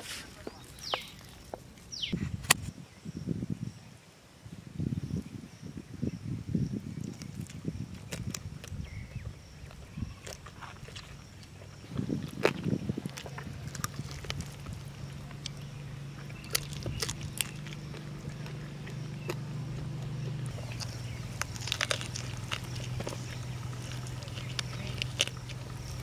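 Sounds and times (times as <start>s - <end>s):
crunchy chewing close up: 0.0s - 2.2s, 6.8s - 26.0s
low steady hum: 7.2s - 26.0s.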